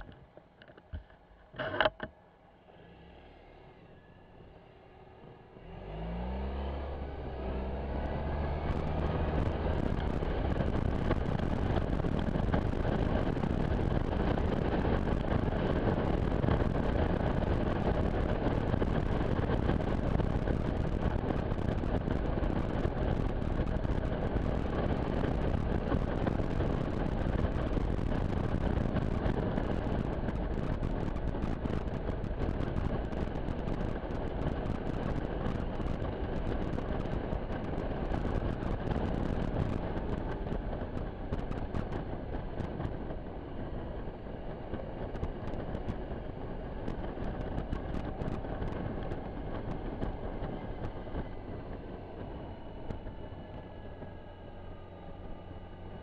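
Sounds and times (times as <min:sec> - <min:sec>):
scooter engine pulling away: 0:02.7 - 0:14.2
wind rushing on microphone: 0:05.8 - 0:56.0.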